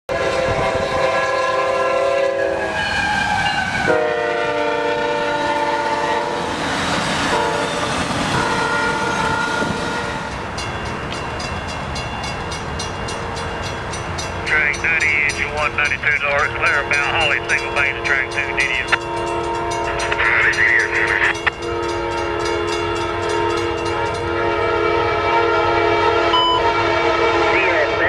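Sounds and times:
locomotive air horn blasts: 0.1 - 6.5, 7.3 - 7.7, 8.3 - 10.3, 16.6 - 20.2, 20.8 - 28.0
crossing bell ringing: 2.8 - 3.7, 7.4 - 25.5, 26.2 - 27.1.

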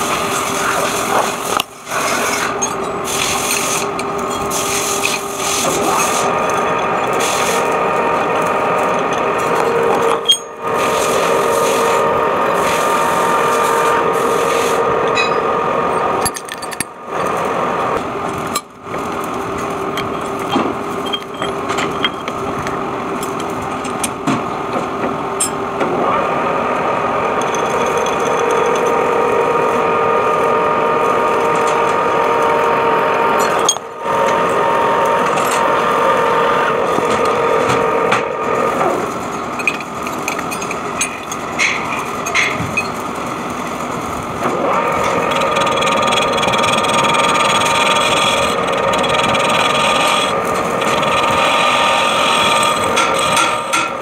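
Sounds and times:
drill scraping into steel: 0.0 - 15.4, 44.5 - 54.0
metal lathe whining: 0.0 - 54.0.

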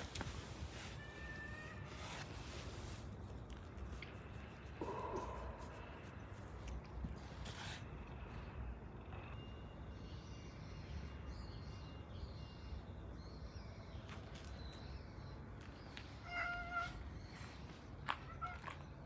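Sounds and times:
low outdoor background: 0.0 - 19.0
cat meowing: 16.2 - 17.0.

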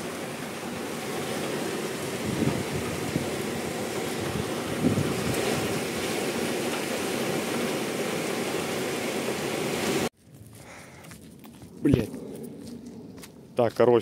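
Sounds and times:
heavy rain pouring: 0.0 - 10.1.

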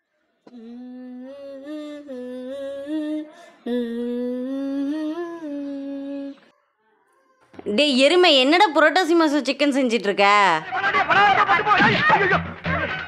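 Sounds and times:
person humming a slow tune: 0.5 - 6.5.

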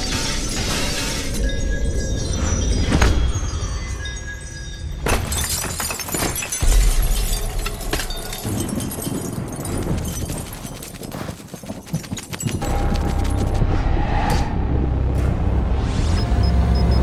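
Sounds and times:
glass and rubble clattering: 0.0 - 13.5.

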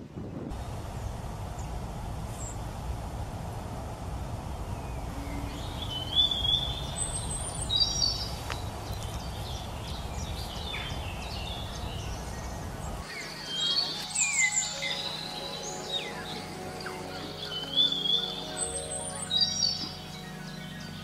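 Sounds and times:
birds trilling calls: 4.8 - 21.0.

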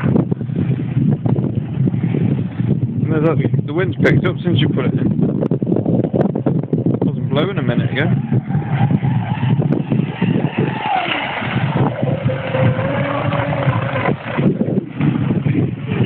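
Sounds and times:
wind on microphone: 0.0 - 16.0
rc boat motor whine: 7.8 - 16.0.

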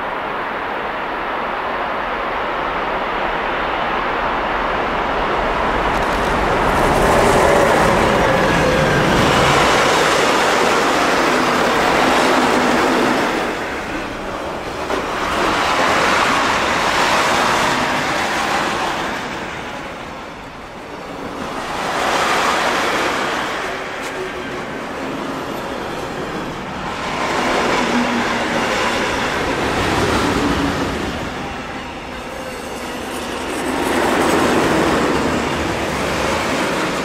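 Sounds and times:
electric locomotive hum: 0.0 - 37.0.

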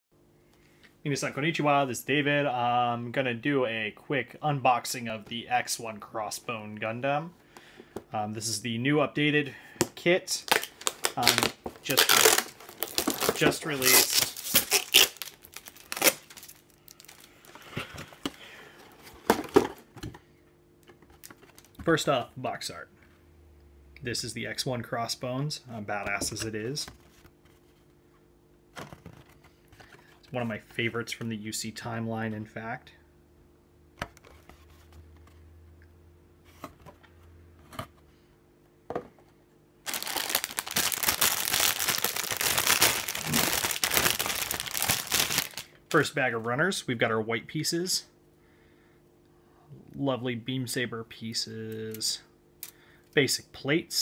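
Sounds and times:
plastic bags crinkling: 10.4 - 18.4, 39.9 - 45.7.

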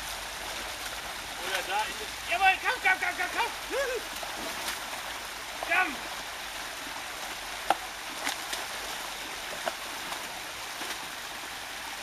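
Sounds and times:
small waterfall pouring into pool: 0.0 - 12.0.

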